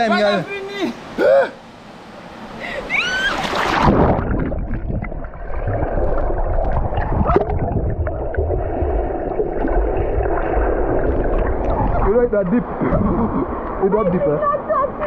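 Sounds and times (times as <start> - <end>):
gurgling bubbles: 3.4 - 13.8
muffled underwater churning rumble: 3.6 - 13.8.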